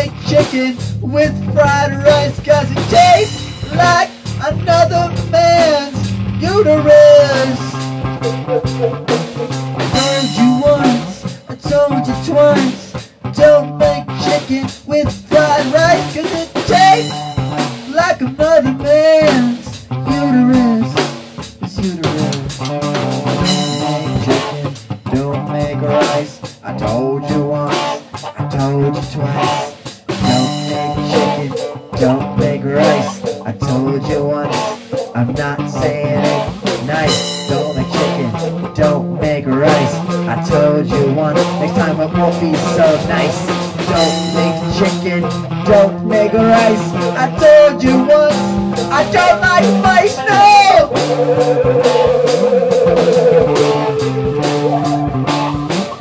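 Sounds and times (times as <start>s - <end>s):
bass line: 0.0s - 12.8s, 15.2s - 21.0s, 21.6s - 25.8s, 30.2s - 34.4s, 47.8s - 56.0s
electric guitar bent lead notes: 0.0s - 26.2s, 28.1s - 56.0s
drum kit steady beat: 0.0s - 56.0s.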